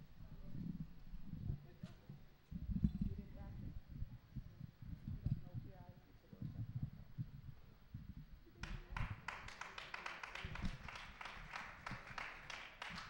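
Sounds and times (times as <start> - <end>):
hand clapping: 8.6 - 13.0.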